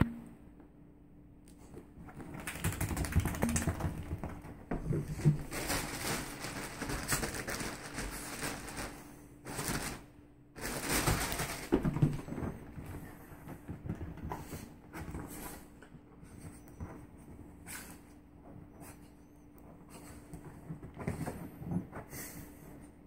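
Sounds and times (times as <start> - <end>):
dog paws scratching fabric: 4.8 - 23.0.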